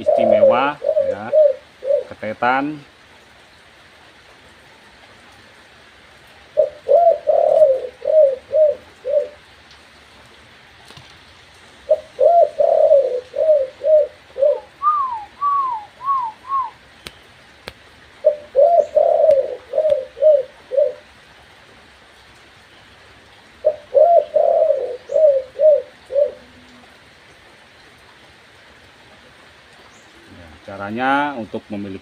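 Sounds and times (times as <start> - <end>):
dove cooing: 0.0 - 2.2, 6.6 - 9.5, 11.8 - 16.8, 18.2 - 21.1, 23.6 - 27.0.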